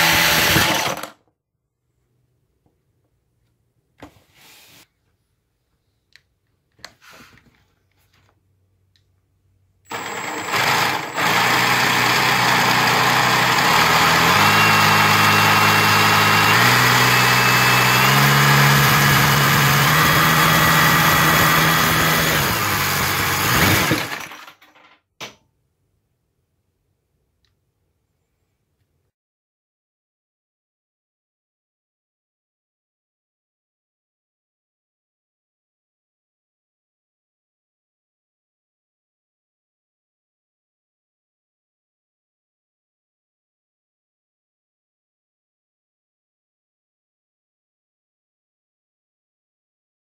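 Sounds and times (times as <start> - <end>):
drill motor whine: 0.0 - 1.1, 9.9 - 24.3
rattle of plastic model parts: 23.5 - 25.0.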